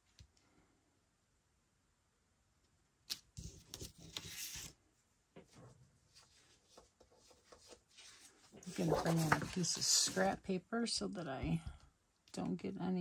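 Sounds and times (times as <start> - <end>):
paper rustling with light taps: 5.4 - 10.4.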